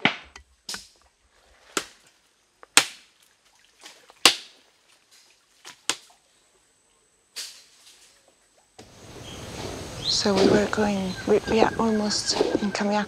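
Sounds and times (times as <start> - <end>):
machete chopping branches: 1.7 - 2.0, 2.7 - 3.2, 4.2 - 4.6, 5.6 - 6.1.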